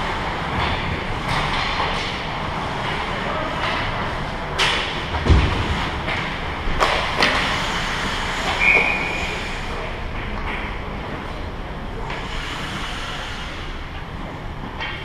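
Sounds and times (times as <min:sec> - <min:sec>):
heavy thump: 0:05.1 - 0:07.5
stick hitting puck: 0:06.8 - 0:07.5
referee whistle blast: 0:08.6 - 0:09.2.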